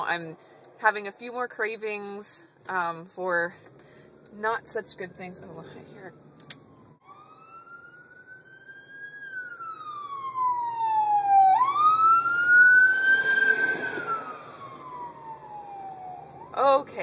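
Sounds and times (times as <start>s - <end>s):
ambulance siren wailing: 4.6s - 17.0s.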